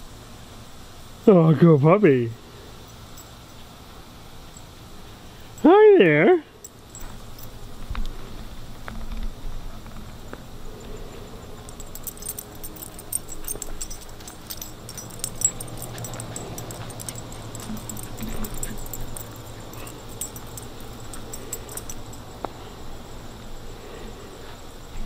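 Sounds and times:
light metallic jingling: 0:02.0 - 0:08.0, 0:10.8 - 0:23.4.

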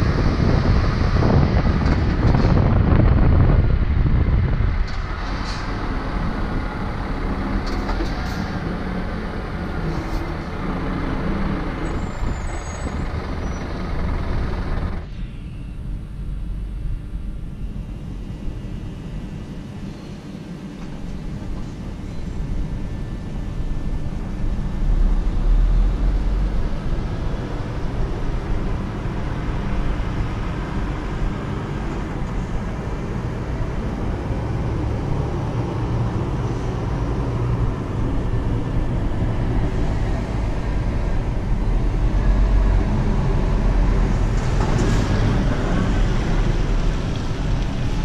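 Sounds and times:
diesel truck engine rumble: 0:00.0 - 0:48.0
road noise: 0:00.0 - 0:48.0.

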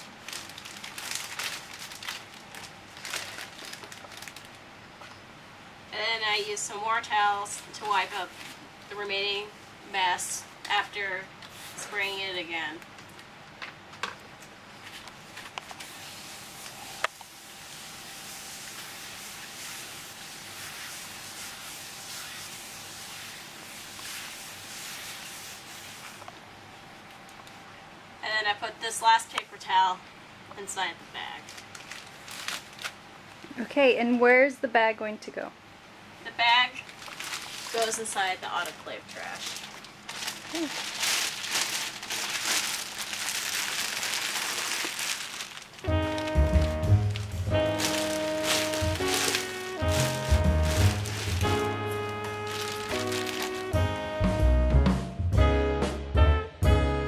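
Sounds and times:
plastic bag crinkling: 0:00.0 - 0:04.6, 0:31.4 - 0:33.0, 0:36.8 - 0:53.8
paper towel scrubbing floor: 0:14.8 - 0:26.3, 0:37.3 - 0:38.1, 0:39.3 - 0:54.0
music with steady bass: 0:45.9 - 0:57.0.

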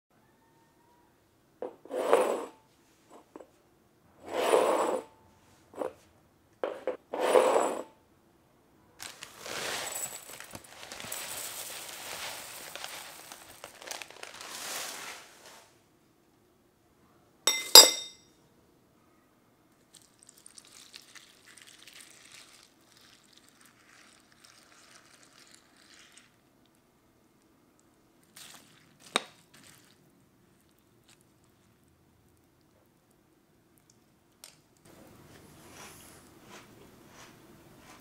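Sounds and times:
cereal poured into a bowl: 0:09.0 - 0:15.6, 0:19.9 - 0:26.4, 0:28.2 - 0:30.0
handling noises: 0:09.0 - 0:15.7
metal spoon clinking in bowl: 0:17.5 - 0:18.3.

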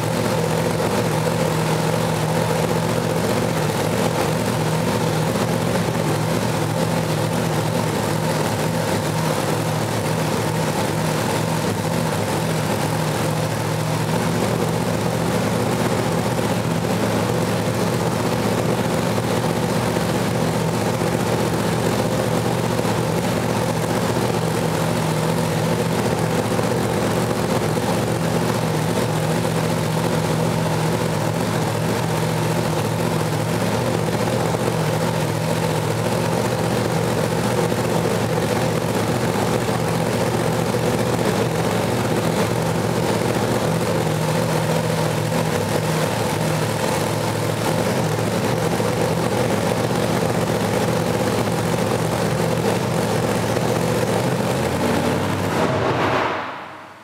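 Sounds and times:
engine idling with open headers: 0:00.0 - 0:56.8.

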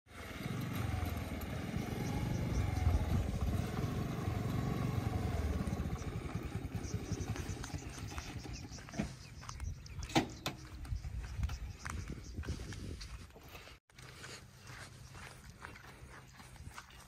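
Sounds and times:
motor scooter engine passing: 0:00.1 - 0:09.6.

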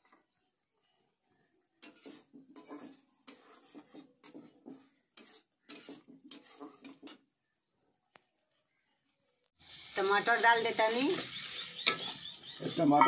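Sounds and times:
metal spatula scraping in a pan: 0:01.7 - 0:07.3.

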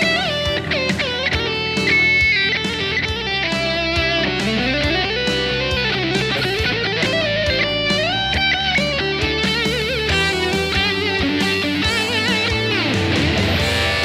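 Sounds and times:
electric guitar lead with bends: 0:00.0 - 0:14.0.

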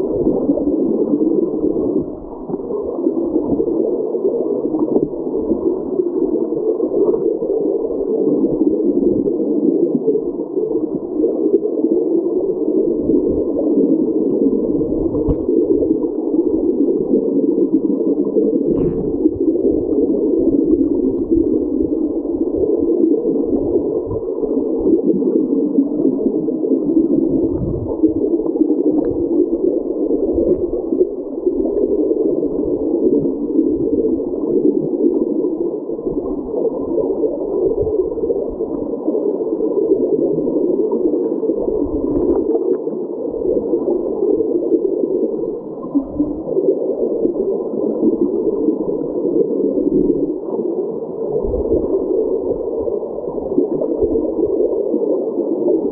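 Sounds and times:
muffled underwater water rushing: 0:00.0 - 0:55.9
low underwater thumps: 0:15.2 - 0:15.5, 0:18.7 - 0:19.5.

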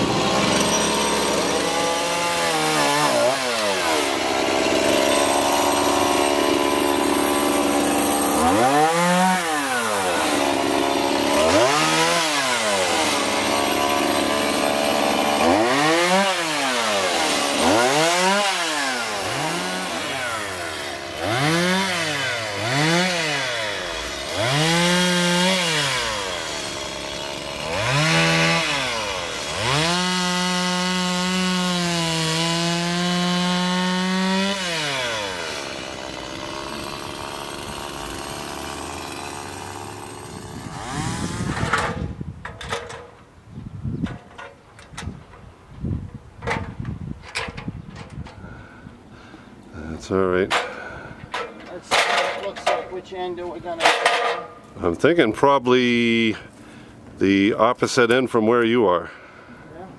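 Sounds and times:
chainsaw engine revving: 0:00.0 - 0:42.2.

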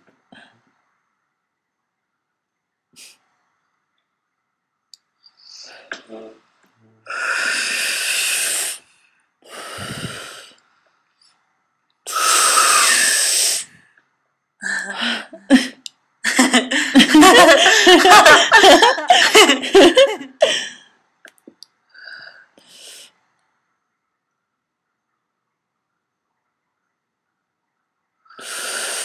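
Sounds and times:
breathy hissing blows: 0:07.1 - 0:10.6, 0:12.1 - 0:13.8, 0:28.4 - 0:29.0.

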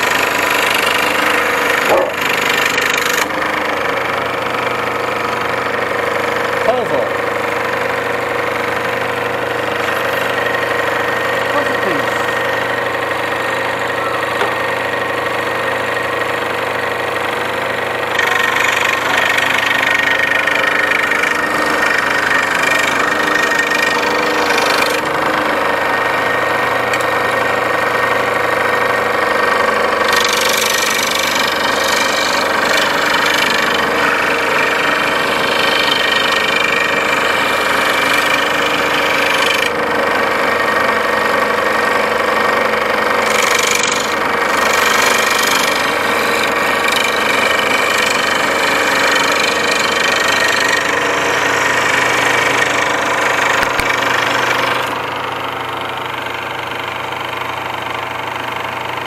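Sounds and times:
saw blade cutting wood: 0:00.0 - 0:59.0
scroll saw motor hum: 0:00.0 - 0:59.0.

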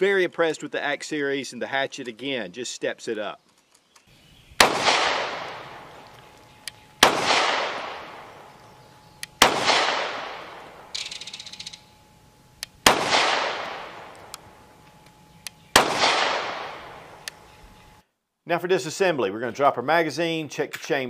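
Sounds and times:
gunshot echo: 0:04.6 - 0:06.0, 0:07.0 - 0:08.5, 0:09.4 - 0:11.1, 0:12.8 - 0:14.2, 0:15.7 - 0:17.2
pistol shots: 0:04.6 - 0:06.1, 0:07.0 - 0:08.6, 0:09.3 - 0:11.4, 0:12.7 - 0:14.4, 0:15.7 - 0:17.2.

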